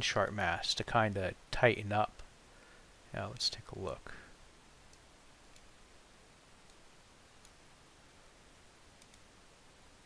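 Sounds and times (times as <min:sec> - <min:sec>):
soft clicks: 0:04.9 - 0:05.7, 0:06.6 - 0:06.8, 0:07.4 - 0:07.6, 0:09.0 - 0:09.3.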